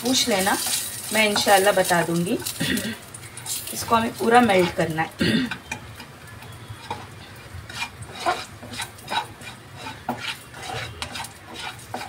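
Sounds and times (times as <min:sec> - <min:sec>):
spoon scraping in a pan: 0:00.1 - 0:02.6, 0:03.2 - 0:12.0.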